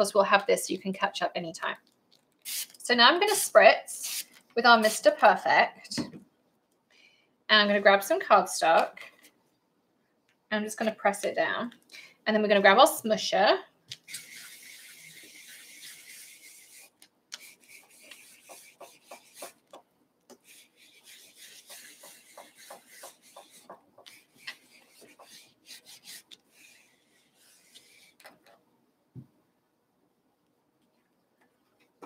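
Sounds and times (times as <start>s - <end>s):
tool rubbing on cardstock: 14.1s - 28.2s.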